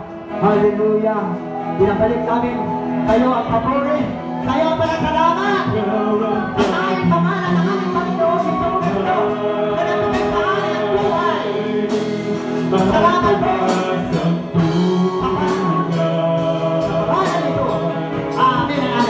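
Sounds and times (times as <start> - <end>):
guitar: 0.0 - 19.0
voices singing: 5.2 - 19.0.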